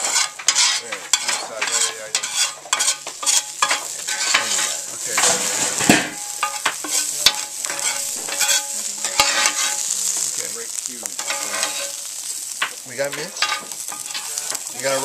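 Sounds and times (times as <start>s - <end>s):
metal spatula scraping and clanking: 0.0s - 10.4s, 11.1s - 15.0s
vegetables sizzling in a pan: 0.0s - 15.0s.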